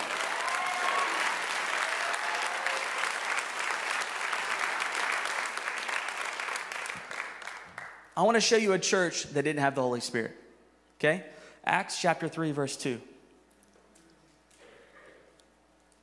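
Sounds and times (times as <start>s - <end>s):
congregation applauding: 0.0s - 8.1s.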